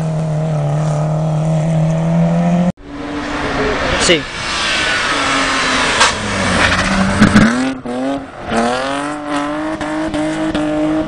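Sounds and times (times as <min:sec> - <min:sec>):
rally car engine at high revs: 0:04.6 - 0:11.0.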